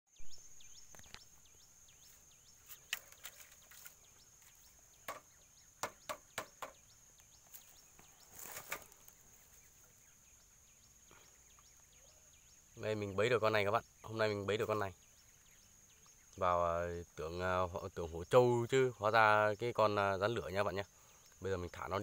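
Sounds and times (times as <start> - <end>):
bird chirps: 0.1 - 22.0
footsteps crunching dry leaves: 7.4 - 9.7.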